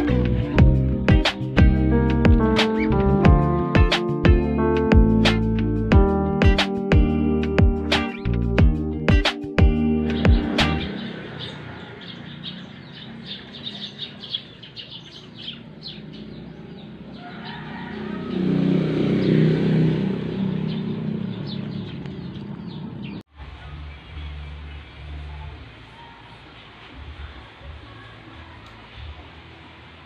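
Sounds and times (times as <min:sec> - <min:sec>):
motor vehicle passing: 0:09.8 - 0:30.0
small birds chirping: 0:10.0 - 0:26.8.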